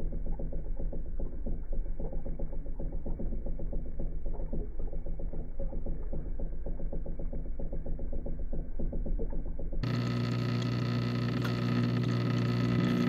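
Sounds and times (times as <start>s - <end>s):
small motor humming: 9.5s - 13.0s.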